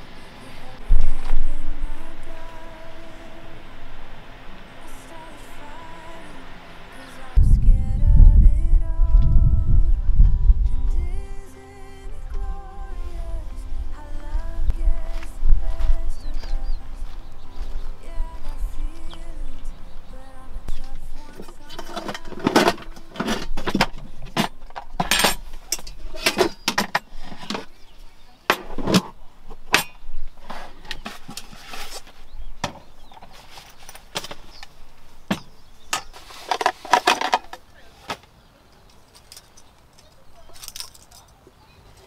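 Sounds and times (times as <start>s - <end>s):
light metallic clinking: 38.8s - 41.4s.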